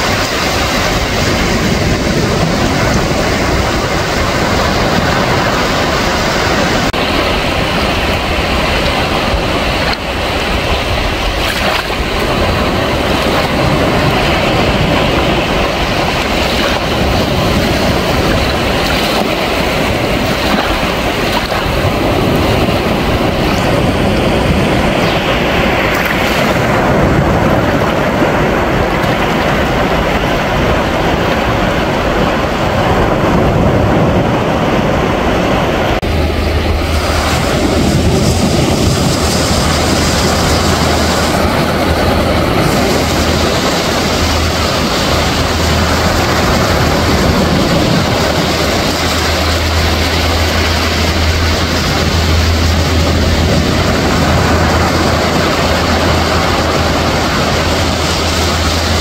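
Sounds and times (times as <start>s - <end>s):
small waves lapping on sand: 0.0s - 34.1s
low engine drone: 0.0s - 59.0s.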